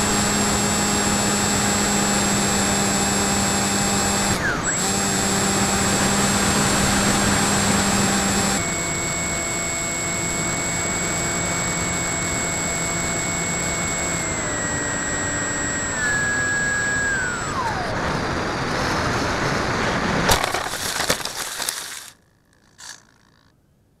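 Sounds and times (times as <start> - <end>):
electric motor and propeller whine: 0.0 - 23.5
crackling and scraping on grass: 20.2 - 23.5.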